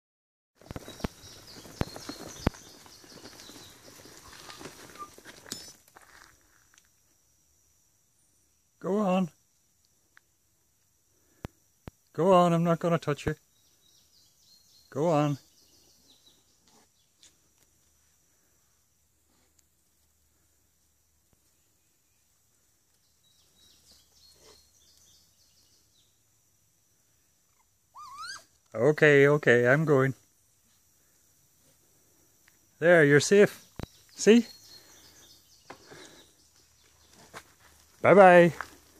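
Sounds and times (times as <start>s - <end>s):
faint high chirping calls: 0.6s - 6.7s, 12.6s - 17.6s, 21.4s - 26.3s, 27.1s - 30.2s, 32.7s - 38.5s
footsteps: 0.6s - 6.9s, 35.6s - 38.9s.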